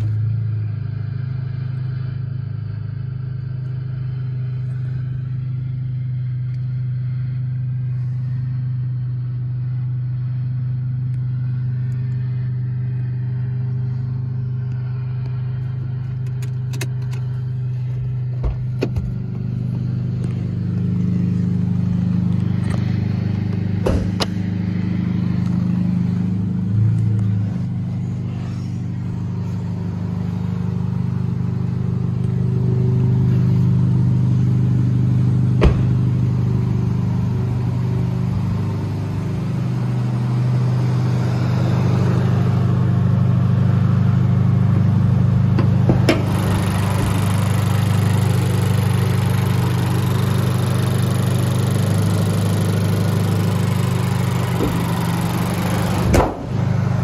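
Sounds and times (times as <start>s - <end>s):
car engine idling: 0.0s - 57.0s
sharp knocks: 23.8s - 24.4s.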